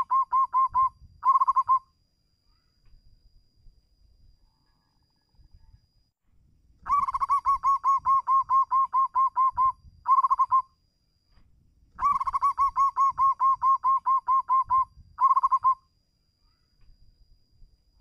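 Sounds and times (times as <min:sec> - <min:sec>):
dove cooing: 0:00.0 - 0:01.8, 0:06.9 - 0:10.6, 0:12.0 - 0:15.8.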